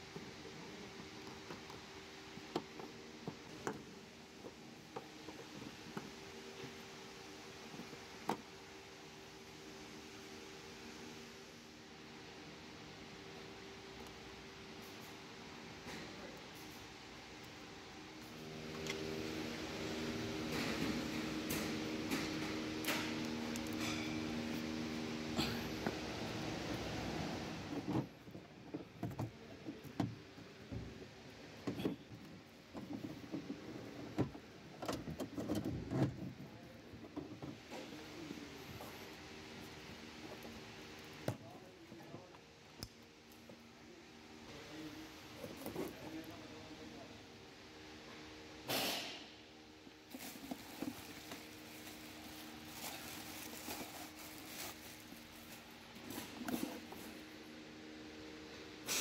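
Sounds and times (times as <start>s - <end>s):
steady low hum: 0.0s - 59.0s
plastic packaging crinkling: 50.1s - 56.0s.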